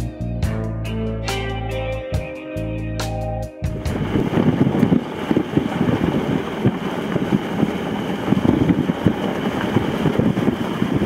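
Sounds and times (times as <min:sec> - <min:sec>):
wind buffeting microphone: 0:03.8 - 0:11.0.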